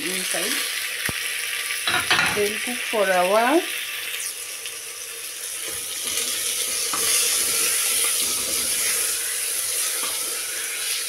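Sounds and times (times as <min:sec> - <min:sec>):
vegetables sizzling in oil: 0:00.0 - 0:11.0.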